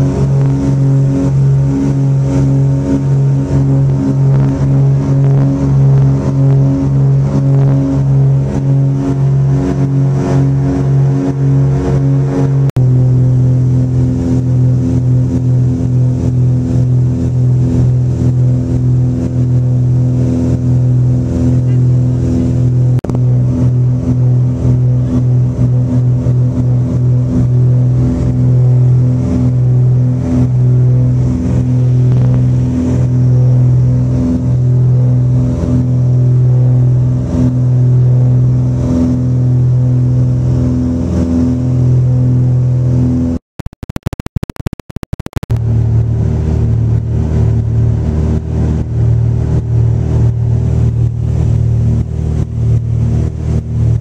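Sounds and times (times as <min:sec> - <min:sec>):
aircraft propeller engines droning: 0:00.0 - 0:43.4, 0:45.5 - 0:54.0
crackling: 0:43.6 - 0:45.6.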